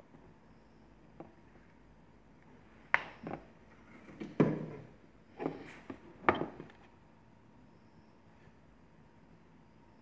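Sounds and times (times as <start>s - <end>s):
knocks and clatters on workbench: 4.0s - 6.8s.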